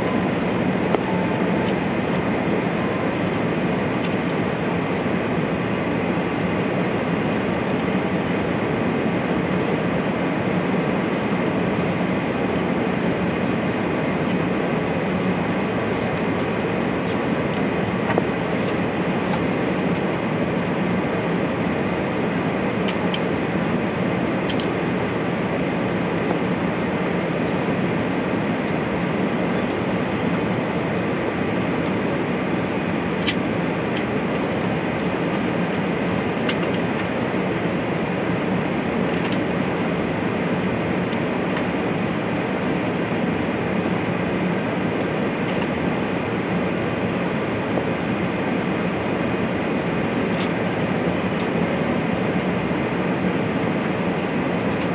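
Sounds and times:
airplane cabin engine drone: 0.0s - 54.9s.

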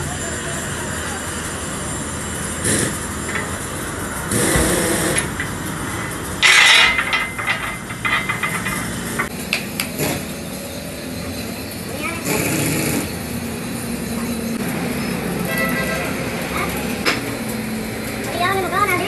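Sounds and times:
mechanical hum: 0.0s - 19.0s
steel bar scraping on metal: 6.4s - 9.3s.

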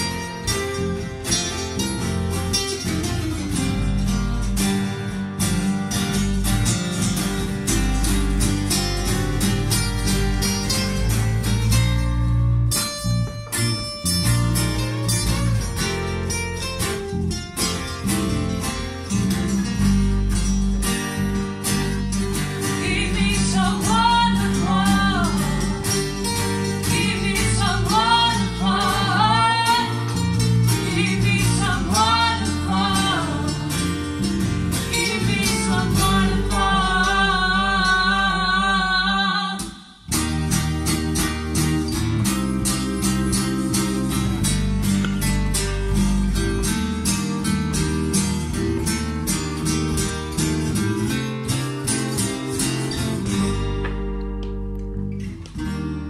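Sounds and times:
acoustic guitar strumming: 0.0s - 56.0s
person singing: 22.8s - 30.2s, 30.8s - 33.7s, 34.9s - 40.0s.

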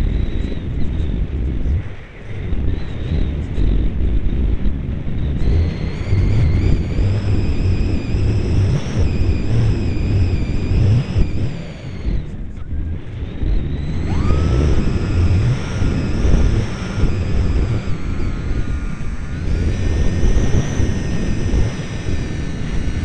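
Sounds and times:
model airplane motor whine: 0.0s - 23.0s
wind buffeting microphone: 0.0s - 23.0s.

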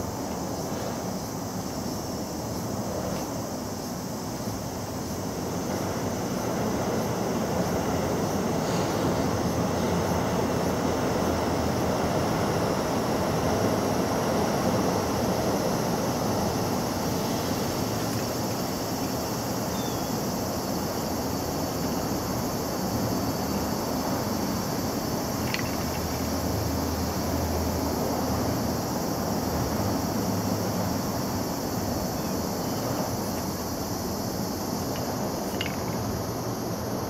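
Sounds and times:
steady hiss: 0.0s - 37.0s.

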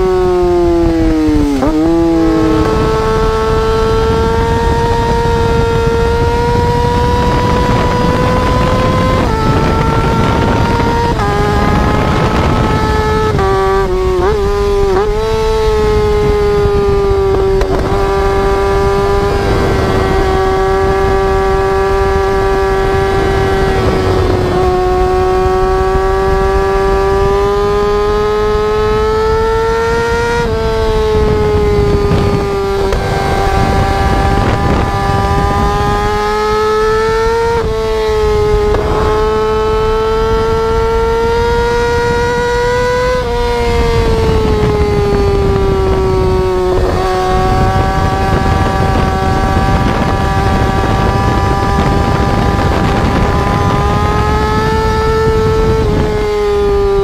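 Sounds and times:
motorcycle engine at high revs: 0.0s - 57.0s.

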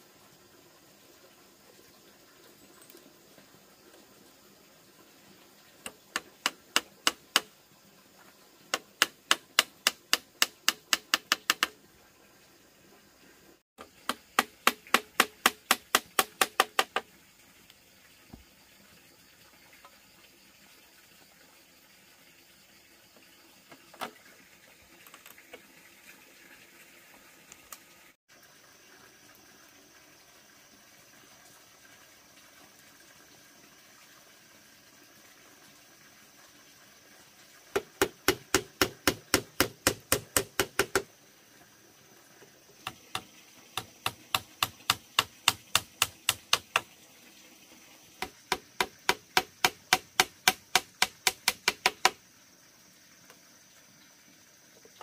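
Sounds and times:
hammer driving nails into bamboo: 5.9s - 7.5s, 8.7s - 11.8s, 14.0s - 17.0s, 37.8s - 41.0s, 42.8s - 46.8s, 48.2s - 52.2s.

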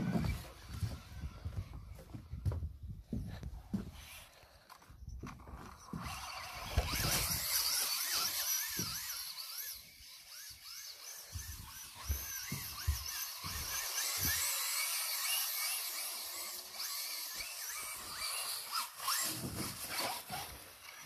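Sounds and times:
rc truck electric motor whining: 0.0s - 2.0s, 5.4s - 21.0s.

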